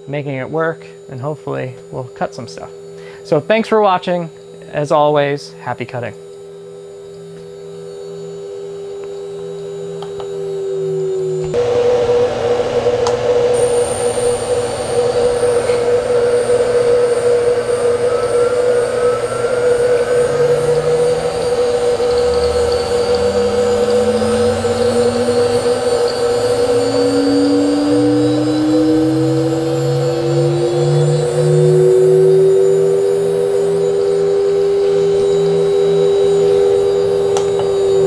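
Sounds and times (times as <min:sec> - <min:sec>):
ambient electronic music: 0:09.0 - 0:38.0.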